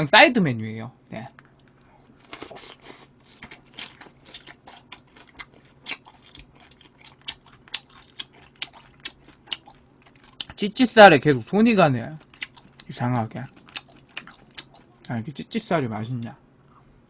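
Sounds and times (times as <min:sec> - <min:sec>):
person chewing: 0:01.4 - 0:10.6, 0:12.1 - 0:15.1.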